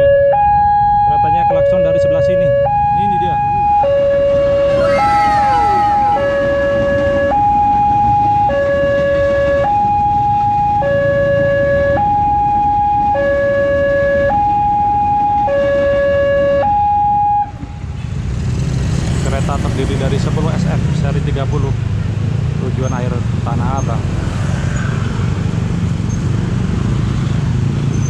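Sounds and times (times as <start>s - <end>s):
two-tone crossing alarm: 0.0s - 17.6s
traffic rumble: 0.0s - 28.0s.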